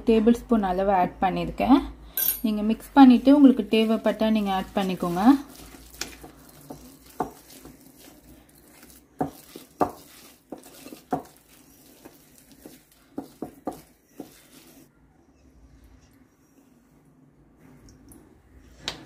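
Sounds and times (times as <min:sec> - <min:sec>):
batter stirred in a bowl: 0:02.7 - 0:14.9.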